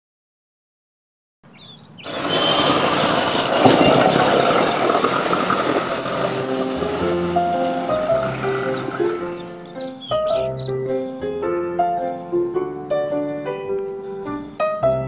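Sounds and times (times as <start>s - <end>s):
street traffic: 1.5s - 11.0s
small engine passing: 1.9s - 10.7s
slow background music: 3.6s - 15.0s.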